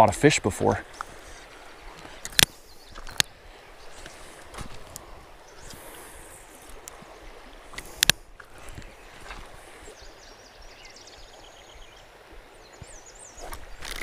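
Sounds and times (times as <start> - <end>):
sharp clicks: 2.2 - 3.3.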